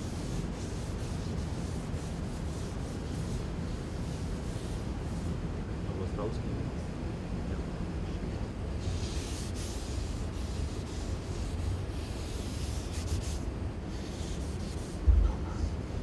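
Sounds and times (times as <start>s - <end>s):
pad rubbing over clay surface: 0.0s - 5.4s, 8.8s - 16.0s
low thump: 15.0s - 15.6s.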